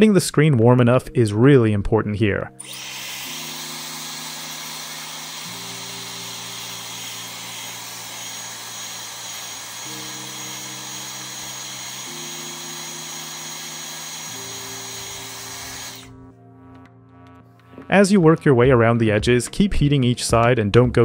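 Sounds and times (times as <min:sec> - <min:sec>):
soft background music: 0:00.0 - 0:21.0
hairdryer blowing with high whine: 0:02.6 - 0:16.2.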